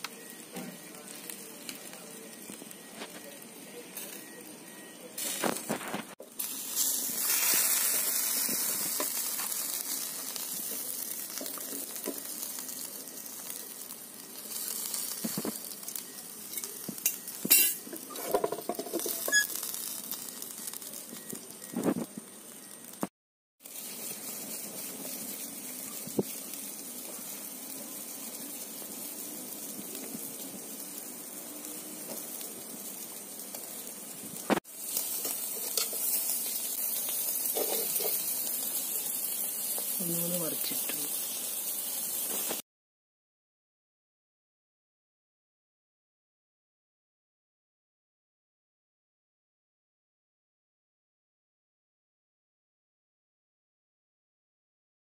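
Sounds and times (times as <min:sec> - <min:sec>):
chicken sizzling on a charcoal grill: 0:00.0 - 0:42.6
metal utensils clinking: 0:35.0 - 0:36.6, 0:37.5 - 0:38.3.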